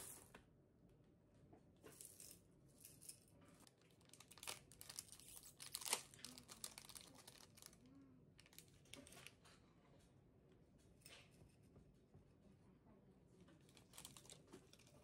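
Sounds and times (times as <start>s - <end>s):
plastic wrapper crinkling and tearing: 3.6s - 9.4s, 13.7s - 15.0s.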